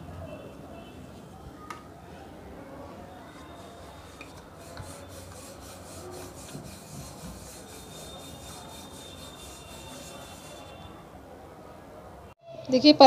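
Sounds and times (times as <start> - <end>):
rolling pin rubbing on board: 3.3 - 10.9.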